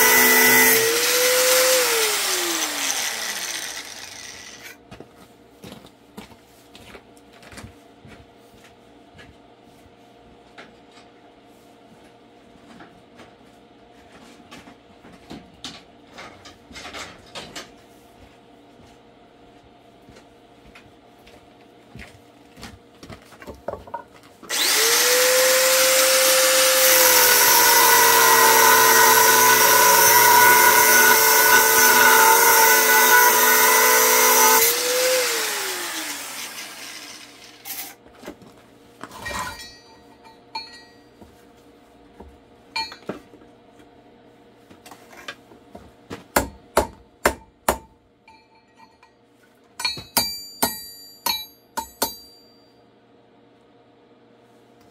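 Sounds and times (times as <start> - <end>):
power tool running: 0.0 - 4.8, 24.5 - 37.8.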